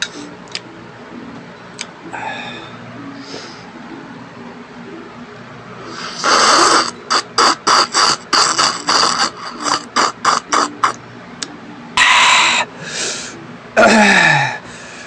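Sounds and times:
person slurping from a cup: 5.9 - 11.0.

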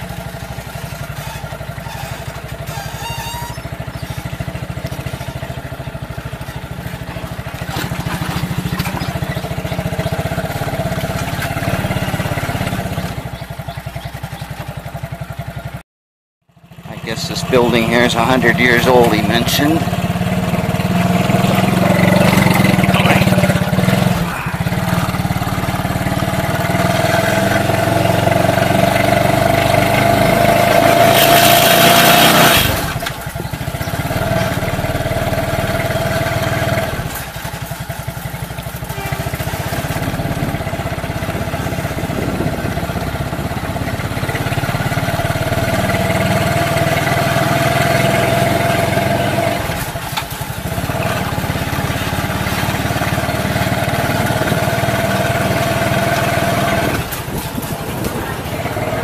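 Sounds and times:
small motorcycle engine running: 0.0 - 15.8, 16.5 - 59.0
wind noise rush: 41.2 - 43.6, 56.9 - 59.0.

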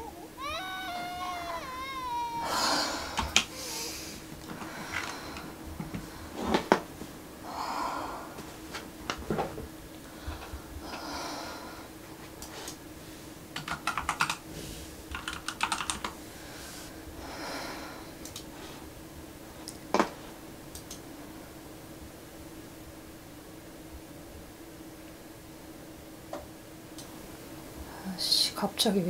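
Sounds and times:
soft breaths: 0.0 - 8.6, 10.0 - 13.4, 16.2 - 19.0
faint steady hum: 0.0 - 29.0
typing on a keyboard: 13.6 - 14.4, 15.1 - 16.2.

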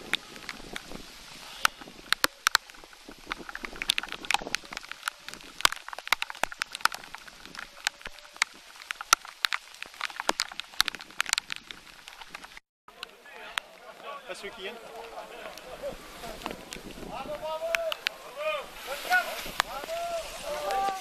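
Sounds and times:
raindrops ticking: 0.0 - 18.4, 19.4 - 21.0.

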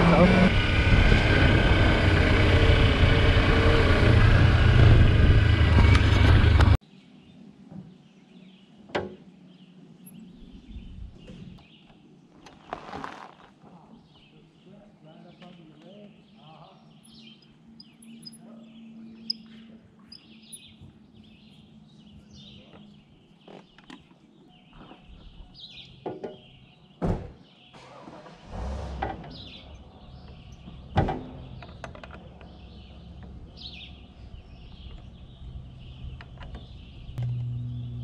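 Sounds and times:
birds chirping: 6.9 - 28.3, 29.2 - 38.0
sharp knocks and clunks: 8.9 - 9.2, 26.0 - 27.4, 30.3 - 32.6.

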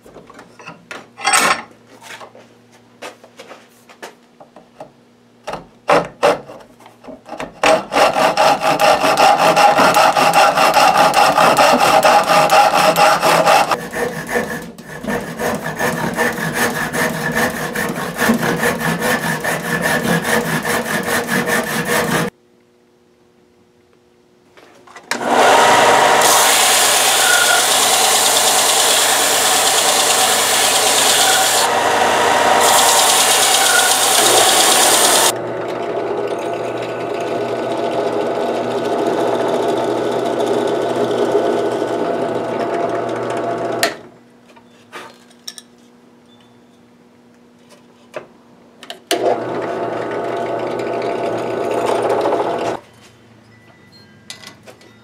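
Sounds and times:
power tool grinding: 7.6 - 22.3, 25.2 - 44.0, 49.1 - 52.8
drill press motor drilling: 25.2 - 44.0, 49.1 - 52.8.

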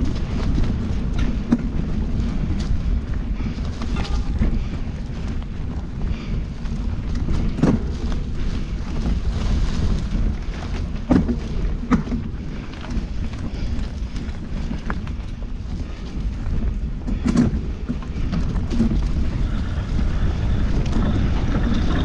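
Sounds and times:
bike jolting over bumps: 0.0 - 22.0
bike tyres rumbling on dirt: 0.0 - 22.0.

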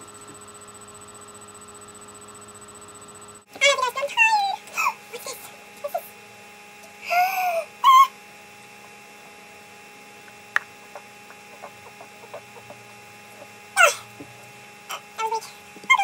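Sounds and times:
electrical mains hum: 0.0 - 16.0.

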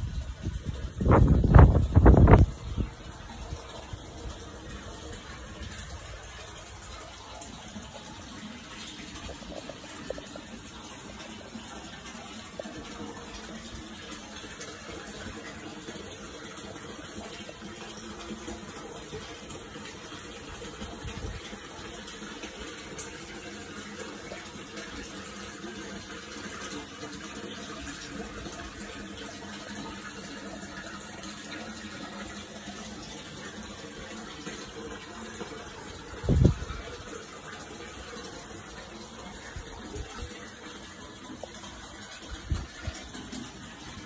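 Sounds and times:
running water rushing: 0.0 - 44.0.

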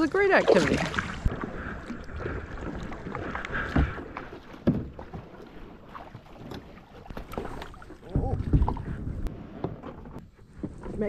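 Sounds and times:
paddle splashing in water: 0.0 - 11.0.

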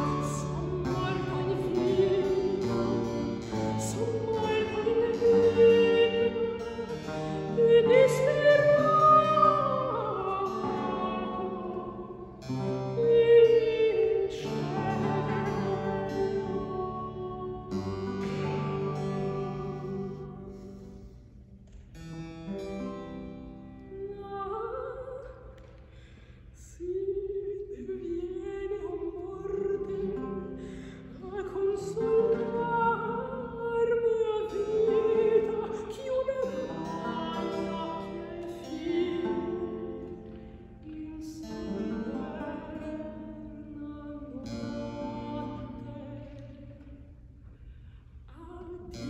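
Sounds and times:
woman singing opera: 0.0 - 20.5, 22.8 - 25.7, 26.6 - 47.2, 48.3 - 49.0.

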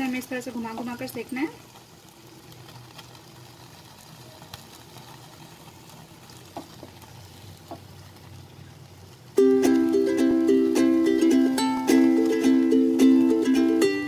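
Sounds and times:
chicken sizzling over flame: 0.0 - 14.0
ukulele music: 9.4 - 14.0.

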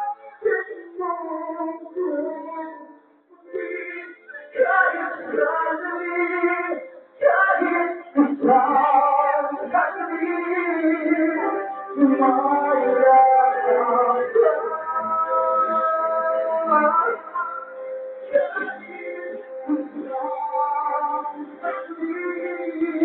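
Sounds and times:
person singing into a microphone: 0.0 - 23.0.

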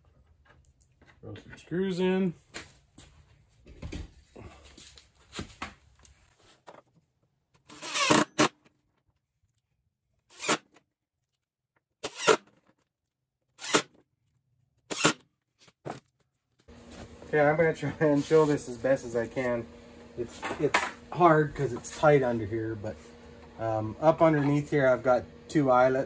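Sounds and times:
cordless drill driving screws: 7.7 - 8.5.

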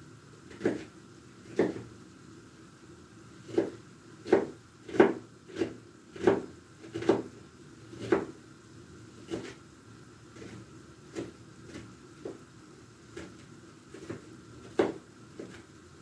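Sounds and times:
knife chopping on wooden board: 0.5 - 0.9, 1.5 - 1.9, 3.5 - 7.3, 8.0 - 8.4, 9.3 - 9.6, 13.2 - 15.6.

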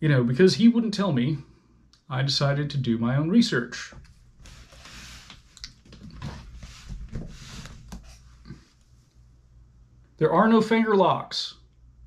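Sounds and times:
books rustling and shuffling: 4.0 - 8.9.

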